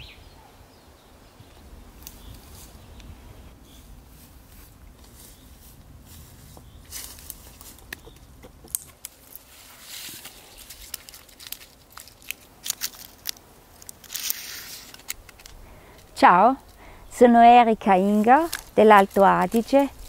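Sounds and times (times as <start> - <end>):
dry twigs snapping: 6.9 - 16.8, 18.2 - 20.0.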